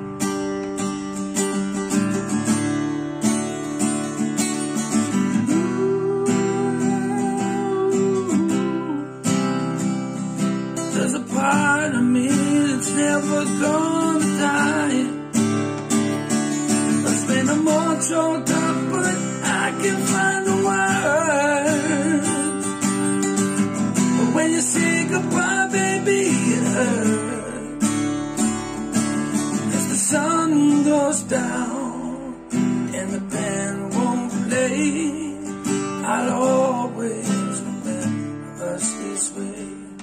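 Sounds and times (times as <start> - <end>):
acoustic guitar strumming: 0.0 - 40.0
man singing: 5.1 - 10.2, 10.8 - 15.4, 16.9 - 28.0, 29.5 - 40.0.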